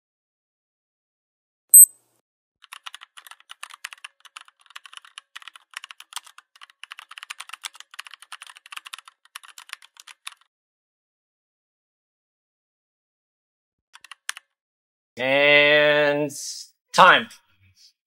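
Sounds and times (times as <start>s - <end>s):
typing on computer keyboard: 2.6s - 10.5s, 14.0s - 14.5s.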